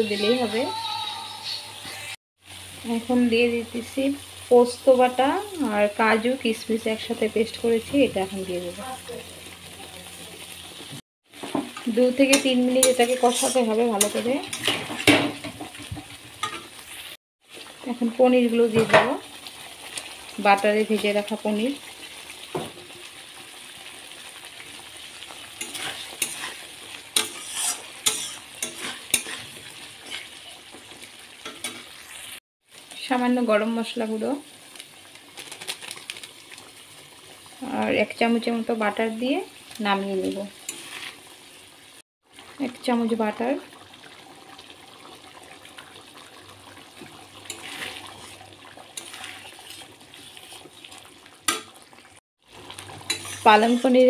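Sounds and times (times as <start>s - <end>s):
food sizzling in a pan: 0.0s - 54.0s
spoon scraping a metal pan: 11.7s - 15.7s, 16.4s - 16.8s, 25.6s - 30.8s, 31.4s - 32.3s, 40.6s - 41.2s, 47.4s - 50.7s, 53.0s - 54.0s
gravy bubbling in pot: 43.6s - 54.0s.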